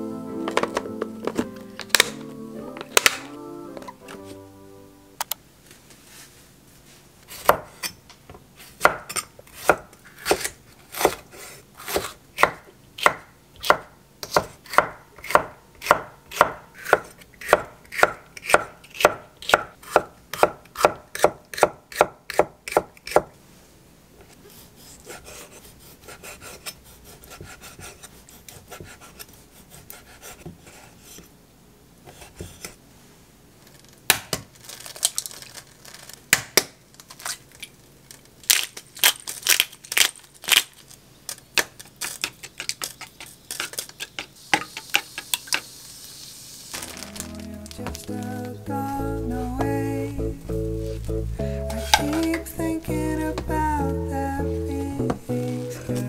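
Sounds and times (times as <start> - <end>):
knife slicing peppers on wooden board: 8.8 - 23.3.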